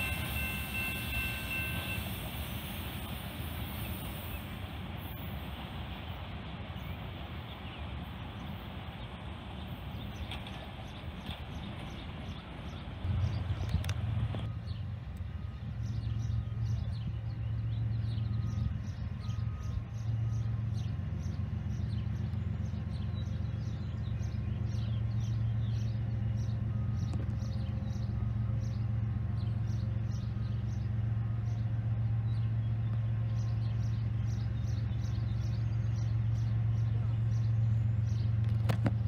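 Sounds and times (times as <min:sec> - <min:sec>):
low engine hum: 0:05.6 - 0:39.0.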